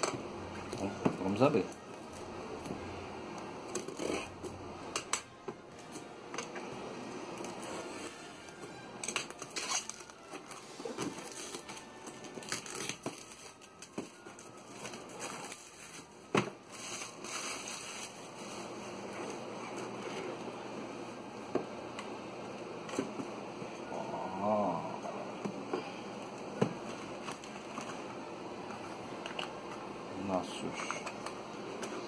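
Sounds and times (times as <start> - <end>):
plastic shrink-wrap tearing: 7.4 - 20.0.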